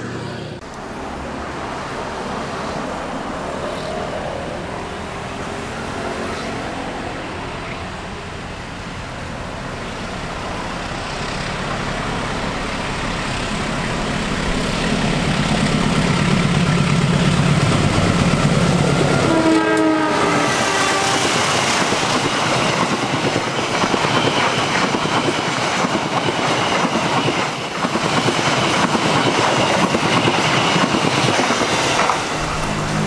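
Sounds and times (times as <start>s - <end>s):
train horn blast: 5.3s - 7.6s, 19.1s - 21.7s
locomotive engine running: 8.2s - 19.4s, 31.8s - 33.0s
clickety-clack of train wheels: 14.6s - 33.0s.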